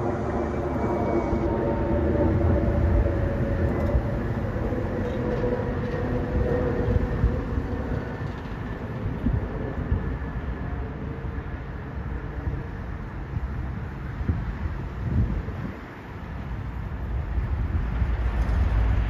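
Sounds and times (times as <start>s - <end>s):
steady tonal hum: 0.0s - 13.9s
diesel locomotive rumble: 0.0s - 19.0s.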